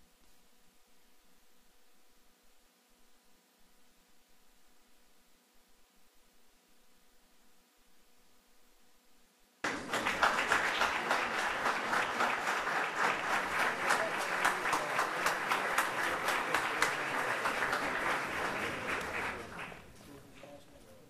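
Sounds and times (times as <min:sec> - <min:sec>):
audience applause: 0:09.6 - 0:20.0.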